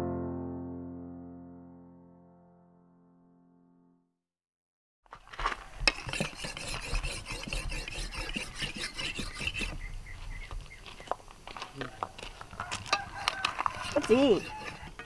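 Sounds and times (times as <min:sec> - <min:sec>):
blade scraping on whetstone: 0:05.8 - 0:09.8, 0:12.8 - 0:15.0.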